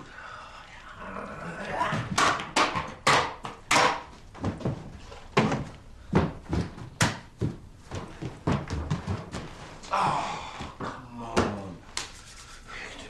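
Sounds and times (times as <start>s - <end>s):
irregular knocks and thumps: 1.9s - 9.8s.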